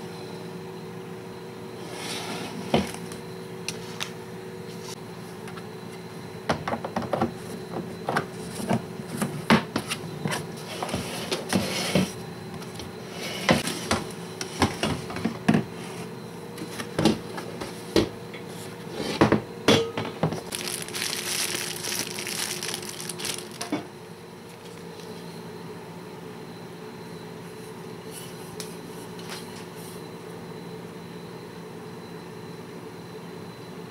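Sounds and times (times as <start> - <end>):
faint steady hum: 0.0 - 32.3
packaging rustling: 20.4 - 23.8, 24.5 - 25.2.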